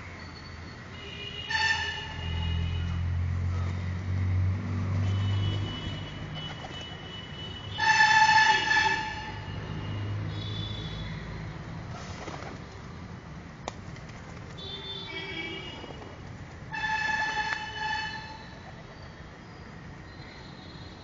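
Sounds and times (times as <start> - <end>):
car horn: 1.0 - 3.0, 5.0 - 11.1, 14.6 - 15.9, 16.7 - 18.5
vehicle engine rumbling past: 2.2 - 6.4.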